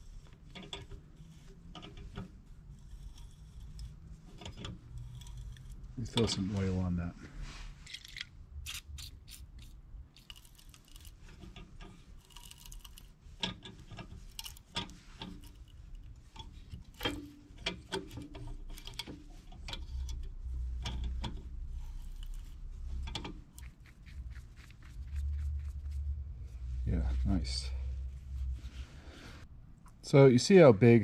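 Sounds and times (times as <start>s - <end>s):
tap wrench clicking and scraping metal: 0.0s - 6.5s, 7.8s - 26.0s.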